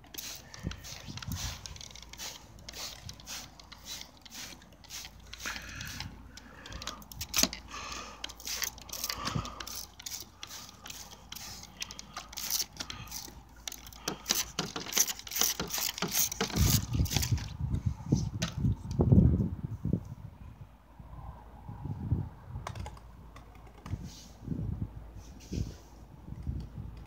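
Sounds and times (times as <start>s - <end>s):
spray bottle squirting: 0.0s - 17.5s.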